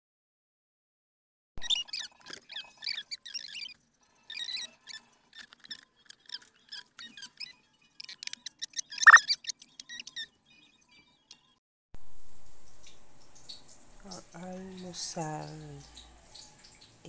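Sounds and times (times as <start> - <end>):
high-pitched squeaks: 8.8 - 10.3.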